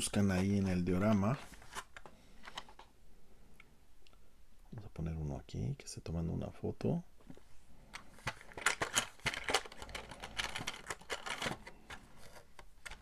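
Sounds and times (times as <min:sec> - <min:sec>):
plastic pieces clicking: 0:07.9 - 0:13.0.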